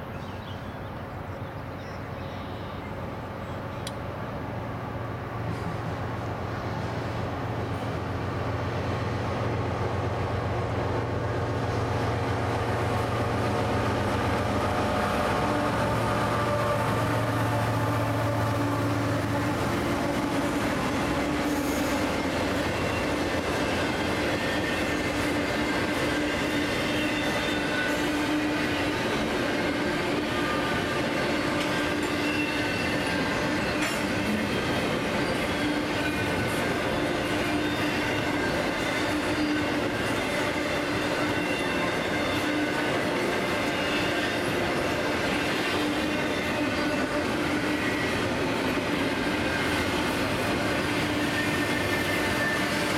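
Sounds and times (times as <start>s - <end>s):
diesel locomotive engine drone: 0.0s - 52.9s
train wheels rumbling on rails: 0.0s - 52.9s.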